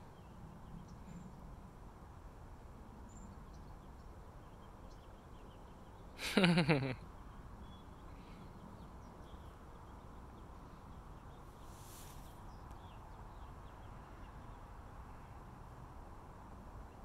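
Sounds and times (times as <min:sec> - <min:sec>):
soft rustle: 0:11.4 - 0:12.8.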